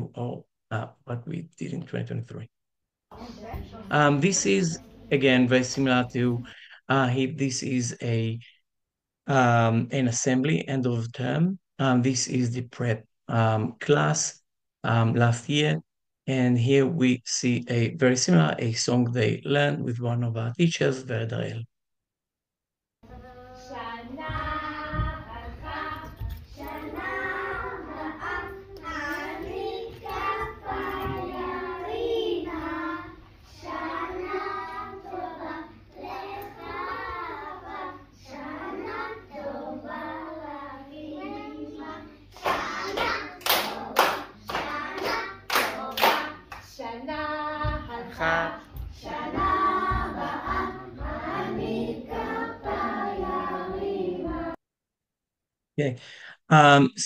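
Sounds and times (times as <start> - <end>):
young children singing: 23.0 - 54.6.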